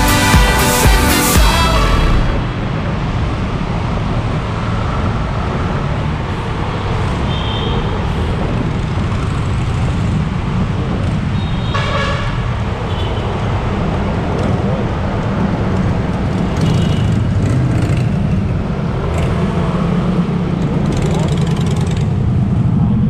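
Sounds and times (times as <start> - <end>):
loud pitched tone: 0.0 - 2.8.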